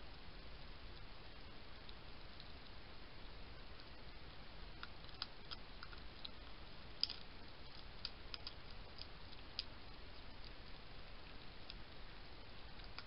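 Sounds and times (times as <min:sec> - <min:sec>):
faint steady hiss: 0:00.0 - 0:13.0
hedgehog crunching food: 0:04.7 - 0:11.9.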